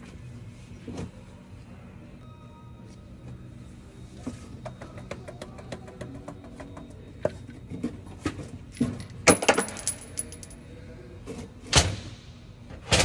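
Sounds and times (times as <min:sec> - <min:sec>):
steel engine parts clinking: 0:08.7 - 0:10.7.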